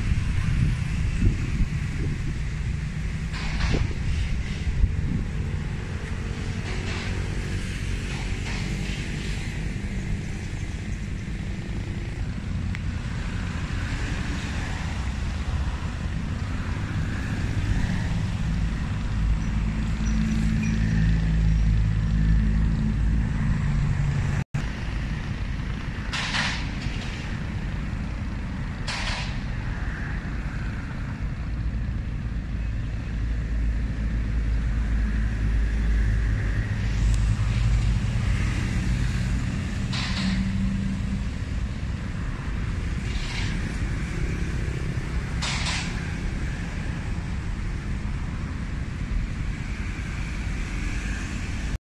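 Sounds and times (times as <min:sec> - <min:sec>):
road traffic rumble: 0:00.0 - 0:51.8
short hissing swishes: 0:43.0 - 0:44.1.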